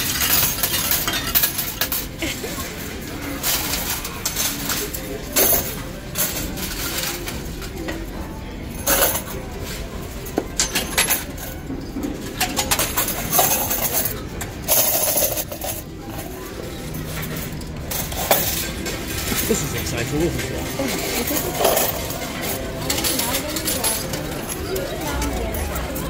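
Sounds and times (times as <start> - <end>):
metal tokens clinking in tray: 0.0 - 2.2, 3.3 - 7.4, 12.4 - 26.0.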